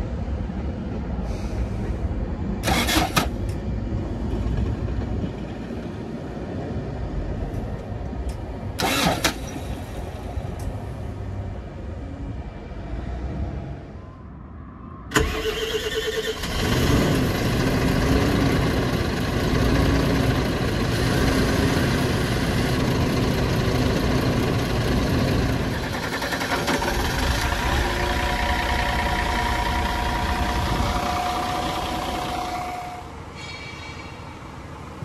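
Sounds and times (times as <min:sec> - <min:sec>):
starter motor cranking: 0:08.8 - 0:09.4
diesel engine idling: 0:15.1 - 0:33.3.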